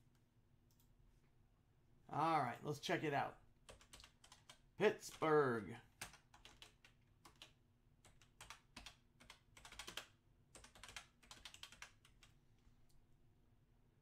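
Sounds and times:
typing on computer keyboard: 3.7s - 4.6s, 6.0s - 12.4s.

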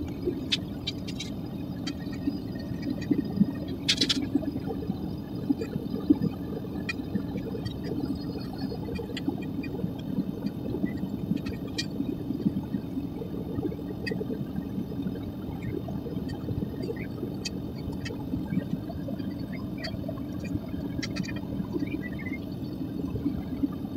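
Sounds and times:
faint ticks and crackles: 0.0s - 23.9s.

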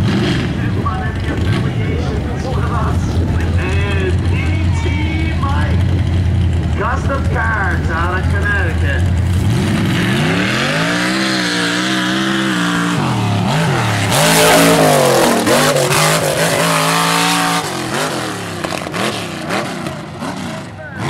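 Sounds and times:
truck engine revving: 0.0s - 21.0s
loud rushing burst: 9.3s - 20.5s.

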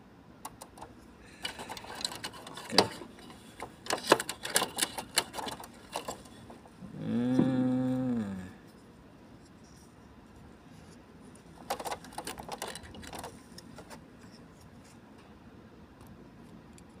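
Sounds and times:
printer clicks and rattles: 0.4s - 6.3s, 11.6s - 13.4s.

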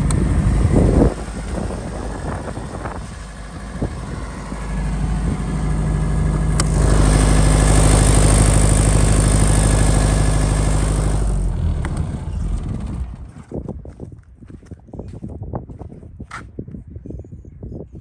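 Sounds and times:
generator diesel engine running: 0.0s - 14.0s.

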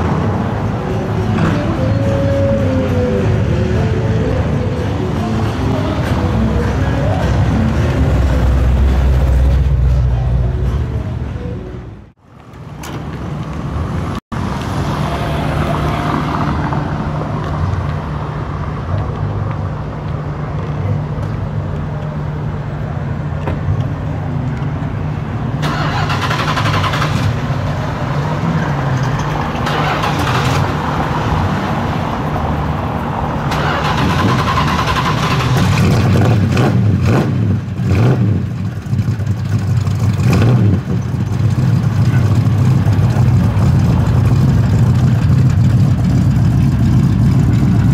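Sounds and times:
car engine idling through exhaust: 38.4s - 47.9s.

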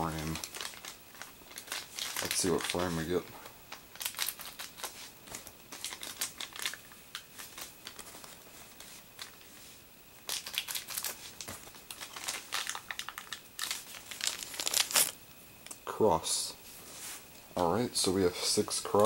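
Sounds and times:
plastic bag crinkling: 0.0s - 3.3s, 3.9s - 9.6s, 10.2s - 15.2s.

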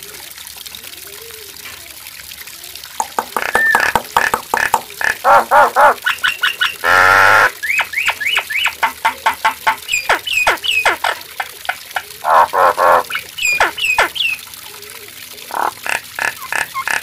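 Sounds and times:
bird rasping calls: 3.3s - 14.4s, 15.5s - 17.0s
bird whistling song: 3.5s - 4.0s, 6.0s - 6.8s, 7.6s - 11.2s, 13.0s - 14.4s.

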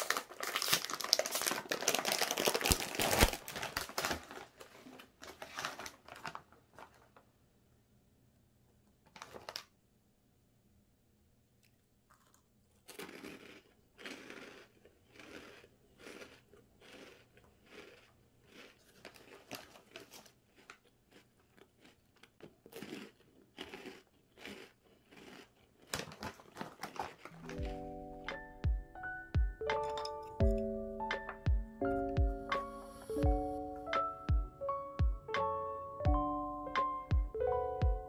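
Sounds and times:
corn puffs crunching: 0.0s - 7.2s, 9.1s - 9.7s, 12.1s - 28.4s
foil snack bag crinkling: 0.0s - 7.2s, 9.1s - 9.7s, 12.1s - 27.9s.

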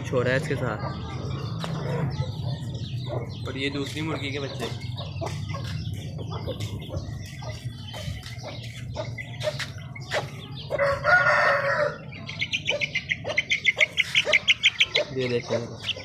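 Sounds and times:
chickens clucking: 0.0s - 16.0s
rooster crowing: 10.8s - 12.0s.

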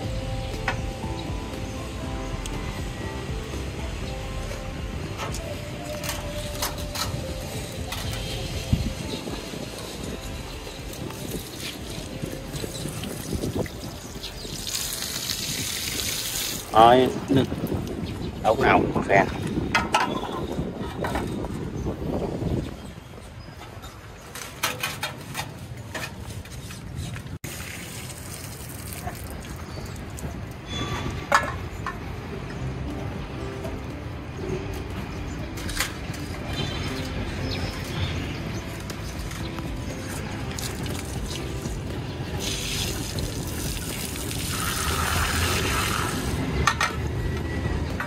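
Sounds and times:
water pouring and splashing: 5.2s - 21.4s, 24.2s - 32.2s, 35.5s - 47.2s
clicks and knocks of repair work: 24.3s - 26.6s.

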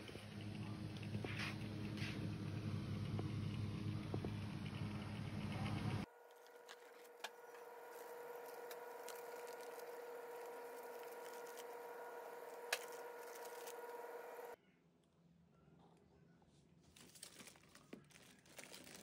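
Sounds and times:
steady electrical hum: 0.0s - 14.6s
baking paper rustling: 6.2s - 14.6s, 16.9s - 19.0s.

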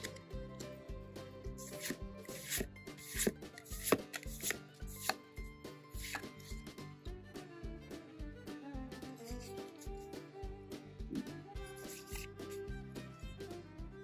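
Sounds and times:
background music with beat: 0.0s - 14.0s
trading cards snapping and rubbing: 1.6s - 5.2s, 5.9s - 6.6s, 11.7s - 12.6s.

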